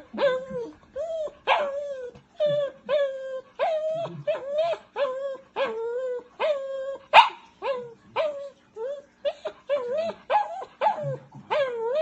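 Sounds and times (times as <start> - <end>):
small dog whining and crying: 0.0 - 12.0.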